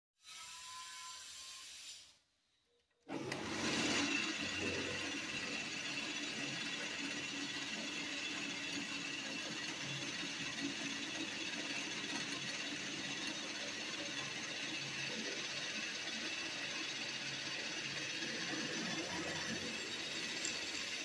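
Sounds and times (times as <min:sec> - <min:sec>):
bench drill motor running: 0:03.1 - 0:21.0.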